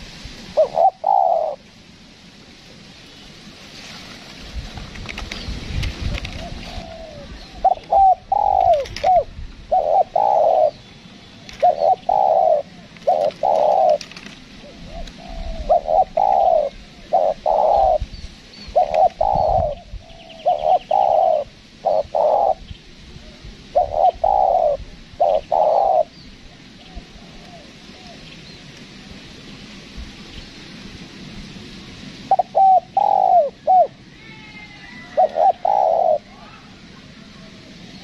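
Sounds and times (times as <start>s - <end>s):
dove cooing: 0.0s - 1.6s, 6.2s - 10.8s, 11.4s - 28.2s, 32.3s - 34.0s, 34.6s - 37.6s
small birds chirping: 5.2s - 30.8s.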